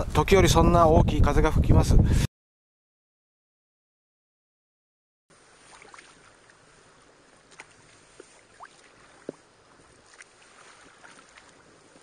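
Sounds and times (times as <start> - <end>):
paddle splashes and drips: 5.3 - 12.0.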